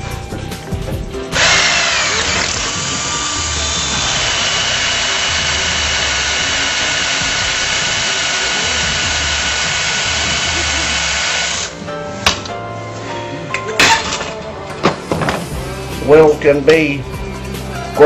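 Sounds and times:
electric drill boring metal: 0:01.3 - 0:11.8.

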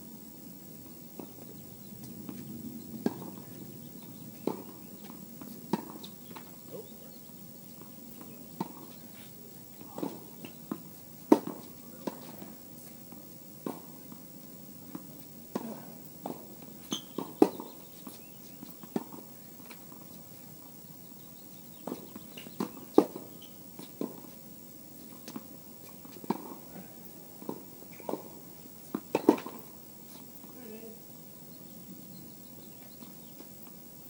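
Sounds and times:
tennis ball bouncing: 0:02.0 - 0:06.6, 0:07.8 - 0:12.6, 0:13.6 - 0:14.2, 0:14.9 - 0:20.4, 0:21.8 - 0:24.4, 0:25.0 - 0:26.8, 0:27.4 - 0:30.6
rackets striking tennis ball: 0:04.3 - 0:06.9, 0:08.1 - 0:12.6, 0:14.9 - 0:20.1, 0:25.0 - 0:29.7.

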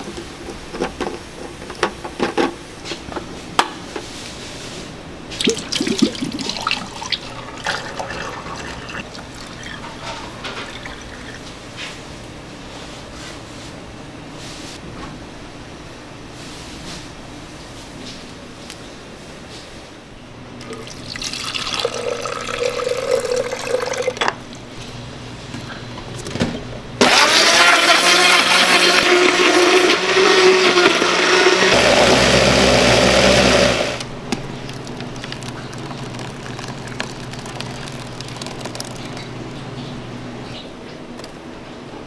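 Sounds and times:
liquid pouring into blender jar: 0:05.4 - 0:10.0, 0:34.6 - 0:39.4
blender motor running: 0:27.0 - 0:34.1.

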